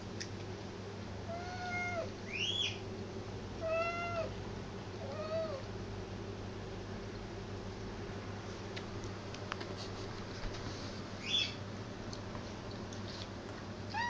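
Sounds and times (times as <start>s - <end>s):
cat meowing: 1.3s - 2.1s, 3.6s - 4.3s.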